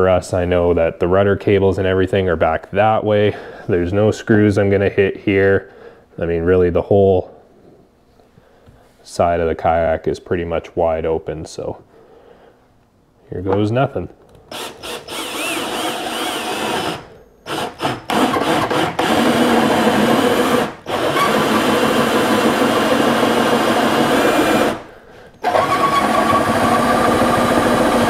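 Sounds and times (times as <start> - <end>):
drill boring through plastic: 14.5 - 28.0.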